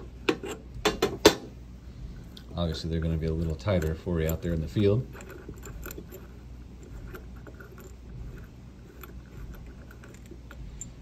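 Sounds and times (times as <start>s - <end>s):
metal nut unscrewing clicks: 0.0s - 0.7s, 2.7s - 11.0s
low steady hum: 0.0s - 11.0s.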